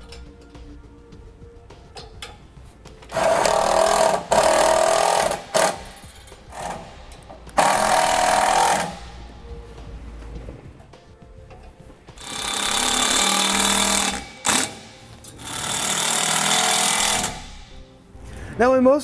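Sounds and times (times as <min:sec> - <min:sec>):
power driver whining and rattling: 0:03.1 - 0:09.3, 0:12.2 - 0:17.8.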